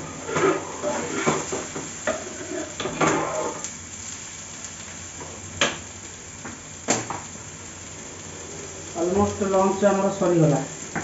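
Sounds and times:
gas stove hiss: 0.0 - 11.0
ladle scraping metal pot: 0.2 - 3.6.

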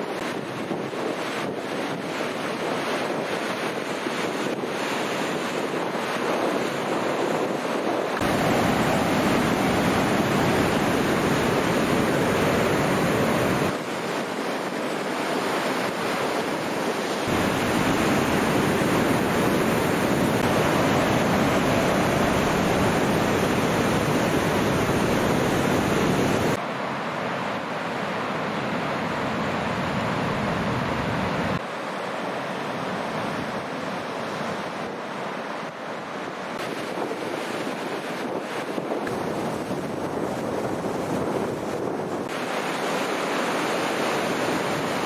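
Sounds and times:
ocean surf breaking: 0.0 - 26.6, 27.6 - 45.0
wind rumbling on microphone: 0.0 - 26.6, 33.0 - 45.0.

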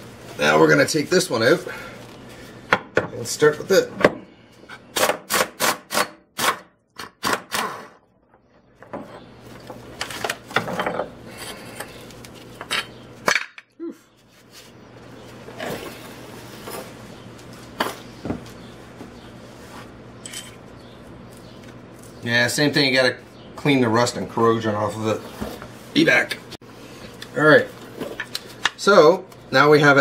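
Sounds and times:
metallic clinks and scraping: 20.2 - 20.7.

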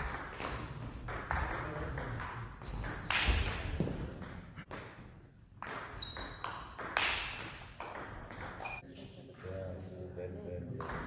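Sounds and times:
shoe squeaks: 2.6 - 3.8, 6.0 - 6.6, 8.6 - 8.8.

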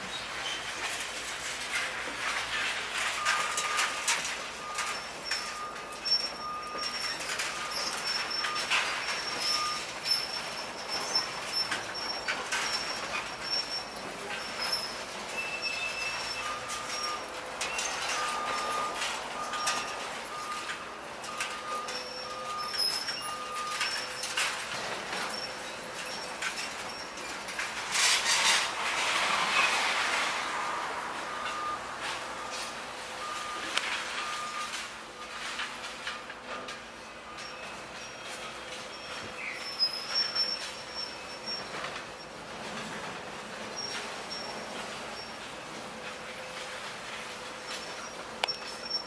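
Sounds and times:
metal clanking and scraping: 0.0 - 49.0
reversing alarm beeping: 3.0 - 27.6, 31.1 - 42.4, 47.4 - 49.0.

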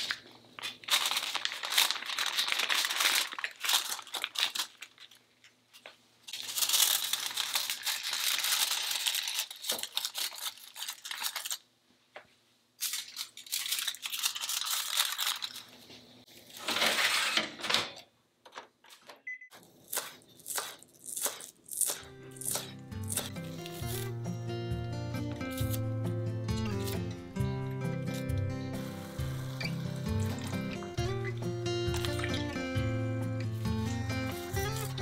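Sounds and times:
aluminium foil rustling: 0.0 - 11.7, 12.8 - 17.4, 28.0 - 32.7, 33.4 - 35.0.

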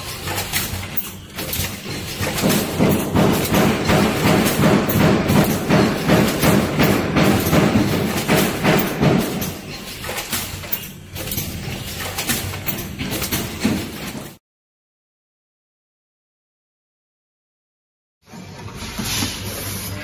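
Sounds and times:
packing machine clattering: 0.0 - 14.4.

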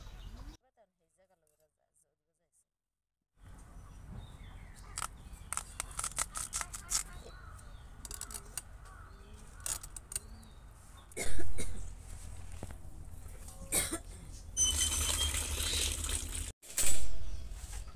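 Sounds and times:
knife clicking through vegetable: 5.0 - 7.2.

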